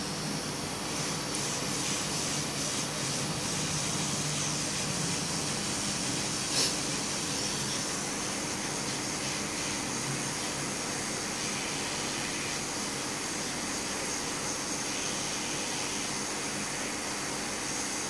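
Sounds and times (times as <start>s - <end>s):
hot-air gun blowing: 0.9s - 9.3s.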